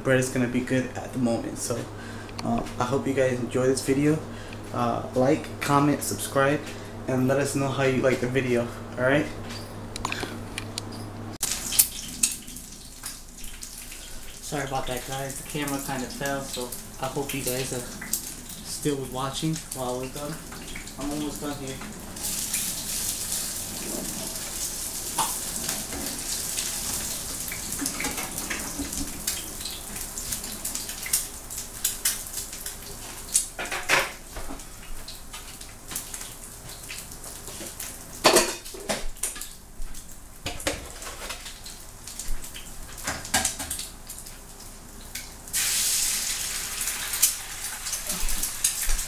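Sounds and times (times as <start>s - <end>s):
food frying in a skillet: 11.4s - 49.0s
utensils and dishes clattering: 38.2s - 39.5s.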